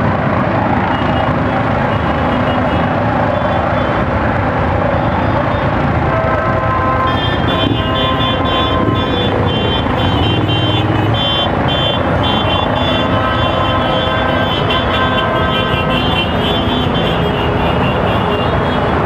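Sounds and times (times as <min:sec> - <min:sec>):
motorcycle engines rumbling: 0:00.0 - 0:19.0.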